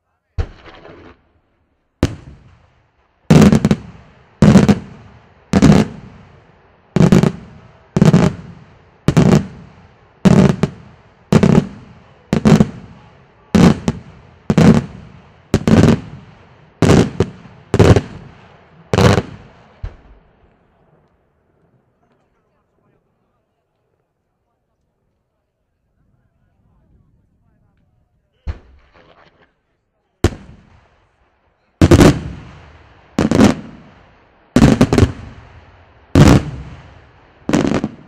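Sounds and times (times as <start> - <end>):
fireworks bursting with echo: 0.4 - 21.0, 30.2 - 38.0.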